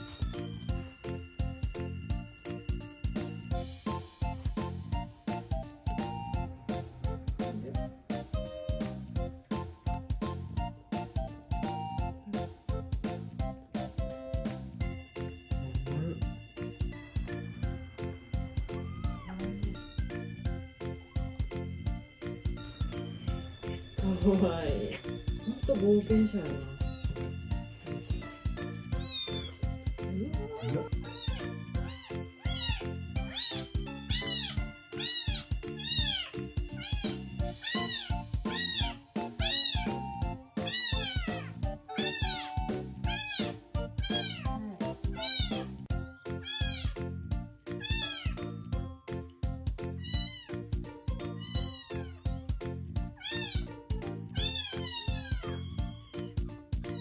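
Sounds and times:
background music: 0:00.0 - 0:57.0
kitten mewing: 0:28.9 - 0:29.7, 0:30.3 - 0:45.7, 0:46.4 - 0:47.0, 0:47.8 - 0:48.4, 0:50.0 - 0:50.6, 0:51.4 - 0:52.3, 0:53.2 - 0:53.7, 0:54.4 - 0:56.3.

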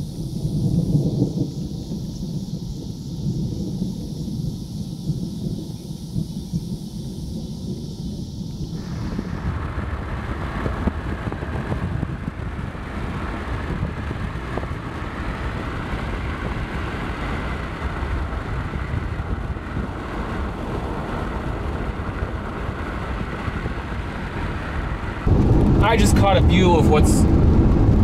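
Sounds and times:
car driving heard from cabin: 0:08.3 - 0:28.0.

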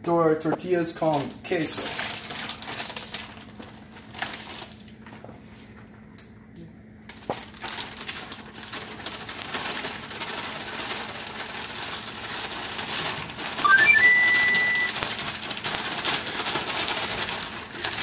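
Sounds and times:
high whistle-like tones: 0:13.6 - 0:15.0.

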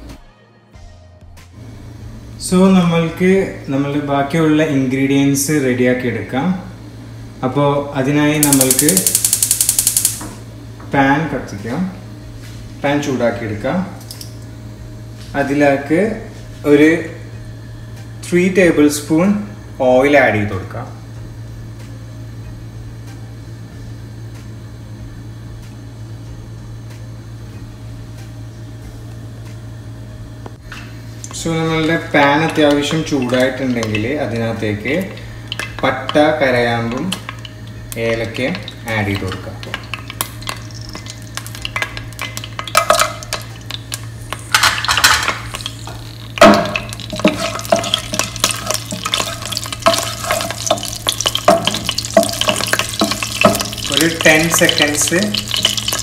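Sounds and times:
steady low hum: 0:01.0 - 0:56.0
spices sizzling in hot oil: 0:08.4 - 0:10.2, 0:31.0 - 0:56.0.

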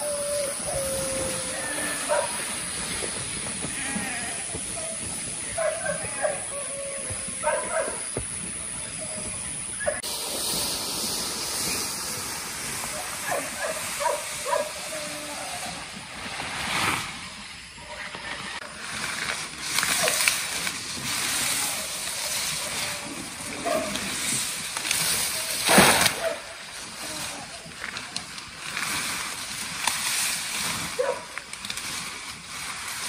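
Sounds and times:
rustling of leafy vegetation: 0:00.0 - 0:33.0
steady high hiss: 0:00.0 - 0:33.0
splash into pond: 0:10.0 - 0:14.8, 0:19.6 - 0:27.6.

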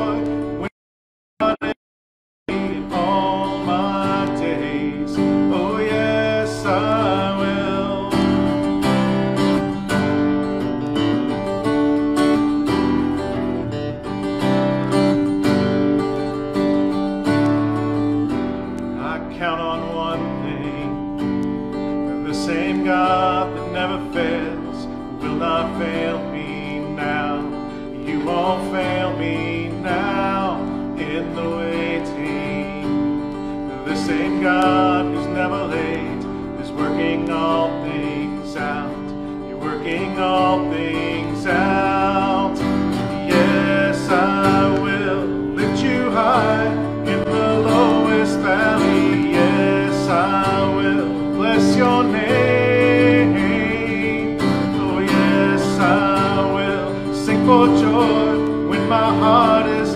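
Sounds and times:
man singing: 0:00.0 - 0:00.7, 0:01.4 - 0:01.8, 0:02.5 - 0:11.3, 0:16.9 - 0:59.9
strummed acoustic guitar: 0:00.0 - 0:00.7, 0:01.4 - 0:01.8, 0:02.5 - 0:59.9.

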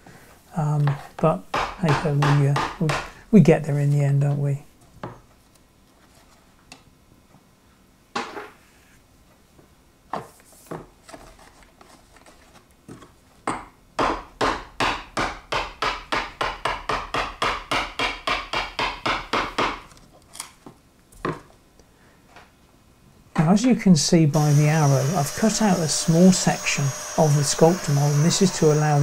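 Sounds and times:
hammer striking a chisel: 0:01.5 - 0:03.1, 0:13.5 - 0:19.8.

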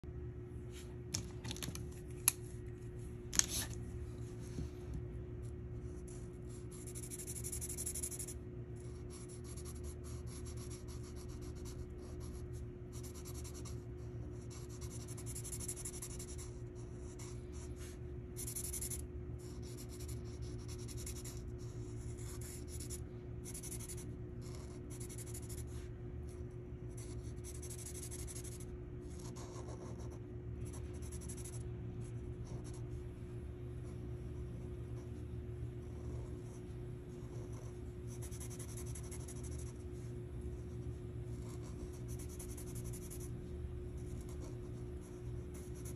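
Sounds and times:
marker scribbling on paper: 0:05.9 - 0:25.9, 0:35.9 - 0:43.3.

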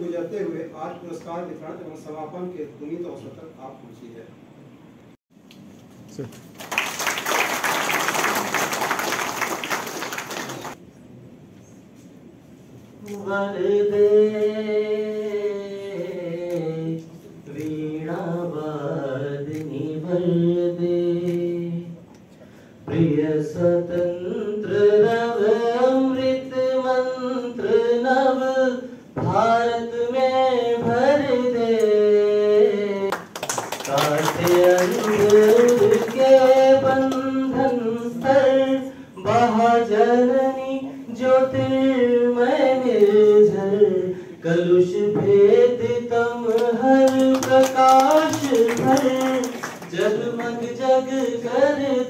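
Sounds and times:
man singing slow devotional chant: 0:13.0 - 0:22.1, 0:22.8 - 0:33.1, 0:33.7 - 0:52.0.

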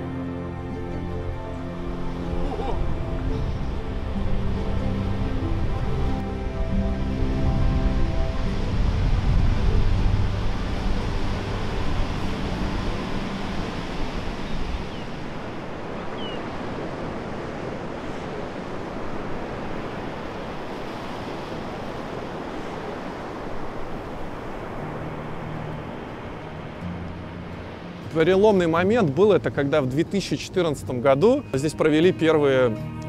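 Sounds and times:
low background music: 0:00.0 - 0:14.9, 0:24.6 - 0:33.0
waves breaking: 0:00.0 - 0:32.6
wind on microphone: 0:02.0 - 0:26.9.

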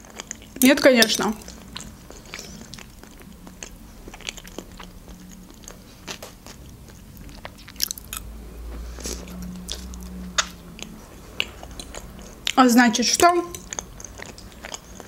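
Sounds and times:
person chewing food: 0:00.0 - 0:12.6, 0:13.4 - 0:15.0
wet mouth clicks: 0:09.7 - 0:12.5.

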